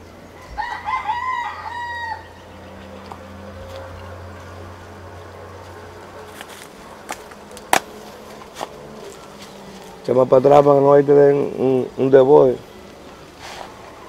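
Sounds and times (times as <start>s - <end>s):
rooster crowing: 0.3s - 4.2s.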